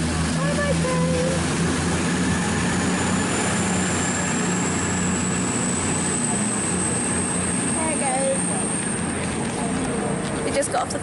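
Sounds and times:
train engines and wheels rumble: 0:00.0 - 0:11.0
thin high whine: 0:01.0 - 0:09.7.

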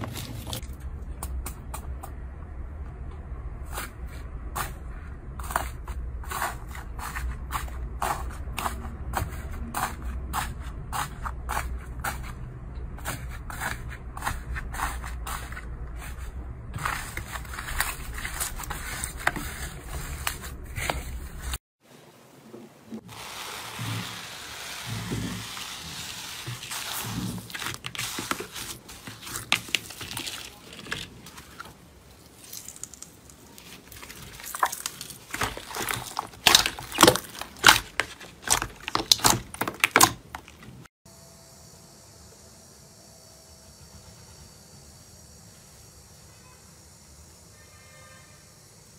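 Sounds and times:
slime squishing: 0:00.0 - 0:00.8, 0:24.9 - 0:40.9
faint steady hiss: 0:21.8 - 0:27.3.

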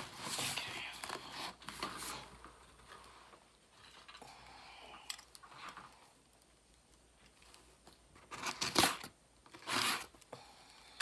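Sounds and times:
scissors cutting cardboard: 0:08.3 - 0:10.1.

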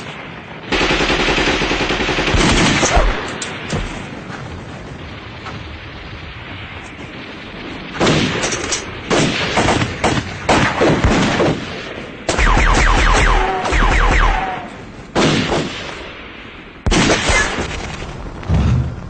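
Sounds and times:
close sharp rifle shots: 0:00.7 - 0:03.9, 0:07.9 - 0:16.2, 0:16.8 - 0:18.0.

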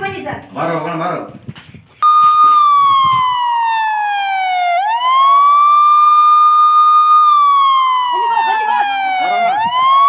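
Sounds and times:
police siren wailing: 0:02.0 - 0:10.0.

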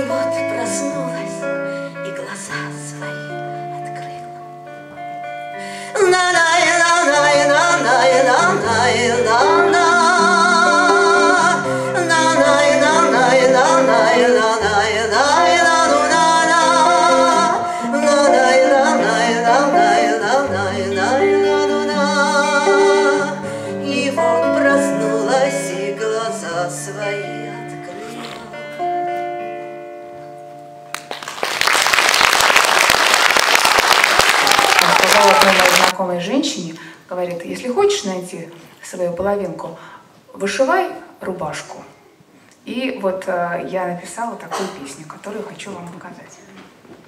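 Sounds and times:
woman singing wordless refrain: 0:05.8 - 0:28.6
audience applause: 0:30.9 - 0:35.9.

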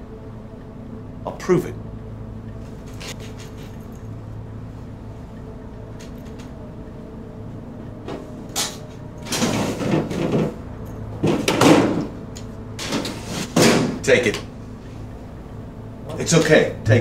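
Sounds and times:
low steady hum: 0:00.0 - 0:17.0
scraping sliding handling noises: 0:12.8 - 0:13.8.

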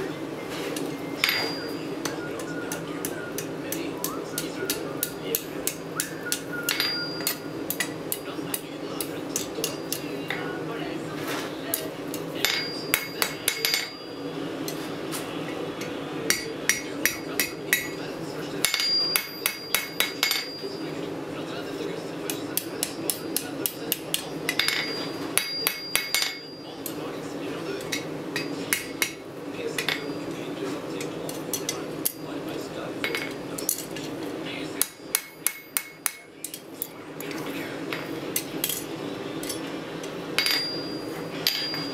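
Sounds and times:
anvil ringing: 0:01.2 - 0:01.8, 0:06.7 - 0:07.9, 0:12.4 - 0:14.2, 0:18.6 - 0:20.8, 0:24.5 - 0:26.7, 0:40.4 - 0:41.9
hammer striking anvil: 0:01.2 - 0:02.2, 0:03.4 - 0:08.2, 0:12.4 - 0:14.0, 0:18.6 - 0:20.6, 0:22.3 - 0:26.6, 0:34.8 - 0:36.3, 0:40.4 - 0:41.9.

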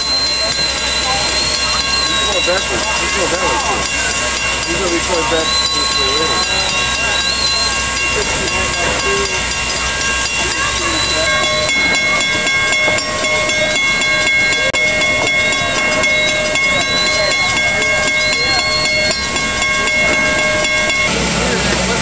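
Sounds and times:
faint steady tones: 0:00.0 - 0:22.0
steam locomotive hissing: 0:00.0 - 0:22.0.

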